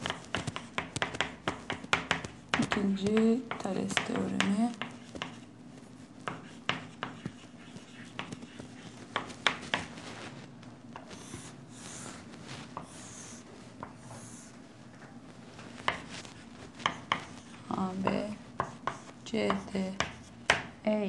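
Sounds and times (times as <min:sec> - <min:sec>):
chalk tapping on chalkboard: 0:00.0 - 0:05.5, 0:06.2 - 0:10.0, 0:12.7 - 0:14.5, 0:15.8 - 0:20.7
low steady hum: 0:00.0 - 0:21.0
chalk scraping on chalkboard: 0:04.7 - 0:10.2, 0:11.0 - 0:14.6, 0:15.7 - 0:20.3.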